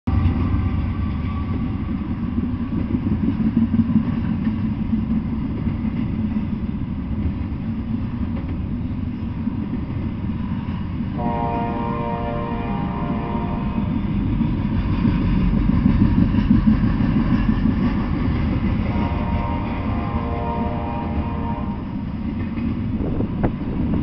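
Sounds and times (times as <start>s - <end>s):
freight train wheels rumbling: 0.1s - 24.0s
train horn chord: 11.2s - 14.0s, 18.8s - 22.0s.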